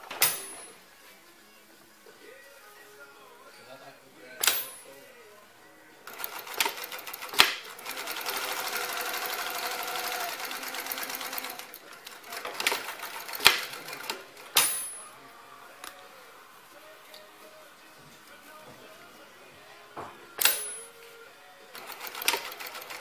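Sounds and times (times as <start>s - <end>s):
sewing machine stitching: 6.1s - 14.6s, 21.7s - 23.0s.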